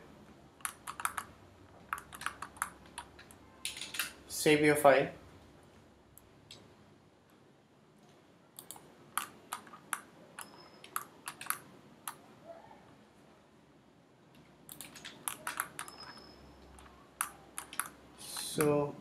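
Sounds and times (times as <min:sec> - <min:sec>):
mouse and keyboard clicking: 0:00.6 - 0:01.3, 0:01.9 - 0:03.4, 0:08.6 - 0:12.2, 0:14.7 - 0:18.8.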